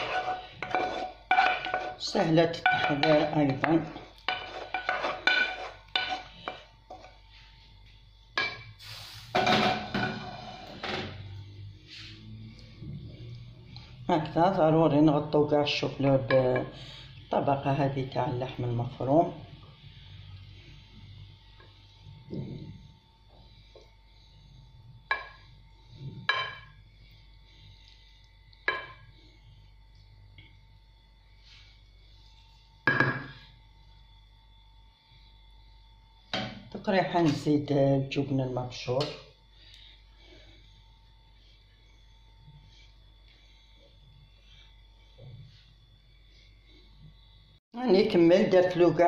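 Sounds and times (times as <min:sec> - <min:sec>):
spatula scraping frying pan: 0:00.0 - 0:07.2.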